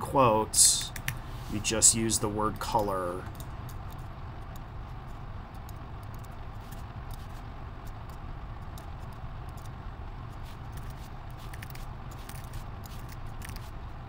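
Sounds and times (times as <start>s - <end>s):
low background hum: 0.0s - 14.0s
keyboard typing: 5.5s - 9.8s, 10.7s - 13.7s.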